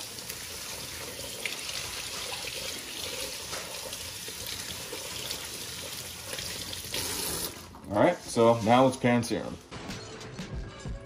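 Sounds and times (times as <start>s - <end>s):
faucet running into sink: 0.0s - 7.6s.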